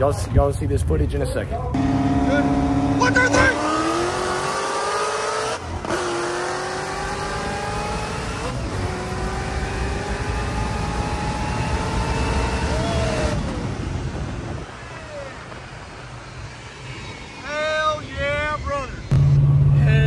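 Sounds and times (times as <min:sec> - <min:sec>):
car engine accelerating: 0:01.8 - 0:17.4.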